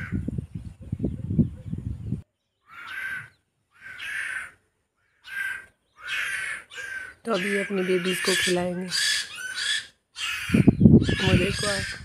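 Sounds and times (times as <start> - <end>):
crows cawing: 2.6 - 12.0.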